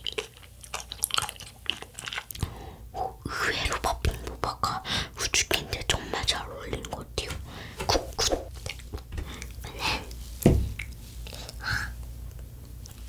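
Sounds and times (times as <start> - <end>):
knock on wooden board: 10.5 - 10.8.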